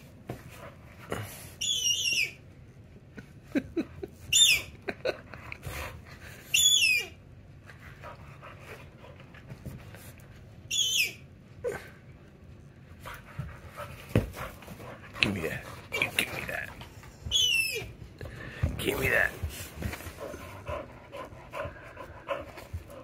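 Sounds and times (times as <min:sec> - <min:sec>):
dog toy squeaking: 0:04.3 - 0:04.7, 0:06.5 - 0:07.1, 0:10.7 - 0:11.2, 0:17.3 - 0:17.9
soft rustling of toy: 0:12.3 - 0:21.4.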